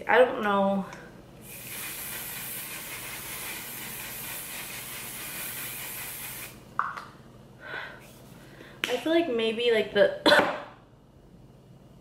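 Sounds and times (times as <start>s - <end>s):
aerosol spray can hissing: 1.4s - 6.6s.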